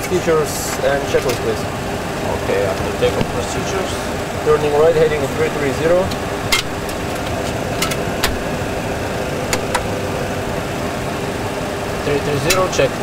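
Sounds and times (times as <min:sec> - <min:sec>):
engine and airflow noise: 0:00.0 - 0:13.0
cockpit switches clicking: 0:06.0 - 0:08.5, 0:09.5 - 0:10.0.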